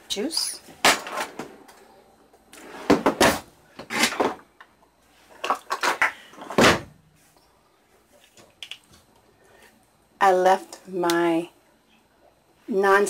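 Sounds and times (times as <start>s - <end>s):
drawer sliding: 2.6s - 4.4s.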